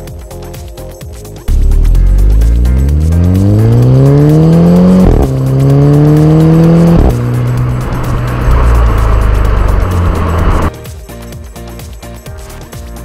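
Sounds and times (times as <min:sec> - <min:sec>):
car engine accelerating hard: 0:01.5 - 0:10.7.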